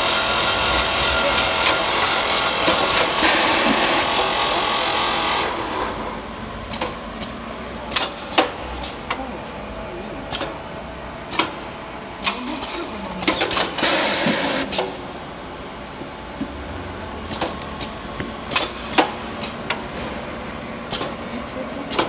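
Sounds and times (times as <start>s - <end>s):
sharp machine clacks: 0.0s - 5.5s, 12.2s - 15.0s
packing machine hissing clatter: 0.0s - 9.1s, 12.2s - 16.6s, 17.2s - 20.3s.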